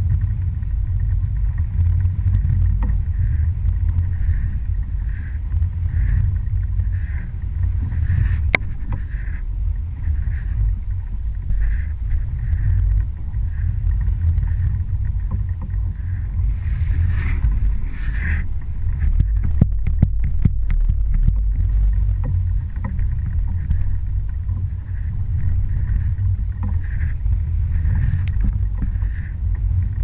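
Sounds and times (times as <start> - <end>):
boat engine rumbling: 0.0 - 30.0
water swishing along hull: 0.0 - 30.0.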